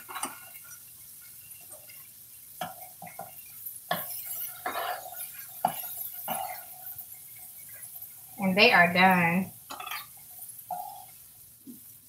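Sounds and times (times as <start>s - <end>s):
metal tongs scraping skillet: 9.7s - 11.1s.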